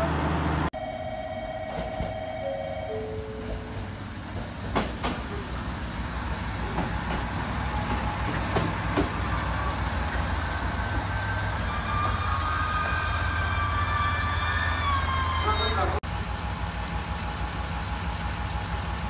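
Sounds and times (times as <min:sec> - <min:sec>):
diesel engine humming: 0:02.2 - 0:19.0
train wheels clicking over joints: 0:03.2 - 0:12.2
brakes squealing: 0:05.2 - 0:16.0.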